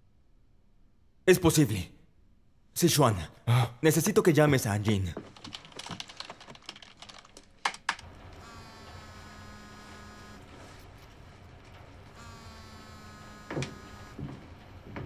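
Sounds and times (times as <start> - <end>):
phone buzzing: 8.3 - 10.8, 12.1 - 14.3.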